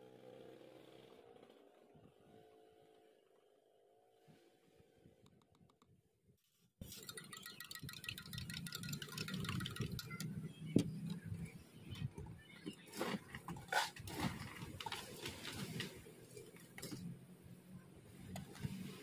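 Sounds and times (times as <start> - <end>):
rapid clinking and clattering: 6.8 - 10.4.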